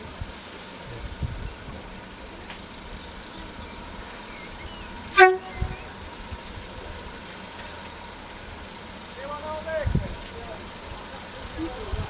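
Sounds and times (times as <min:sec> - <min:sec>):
moving train running noise: 0:00.0 - 0:12.0
railway whistle toot: 0:04.7 - 0:06.0.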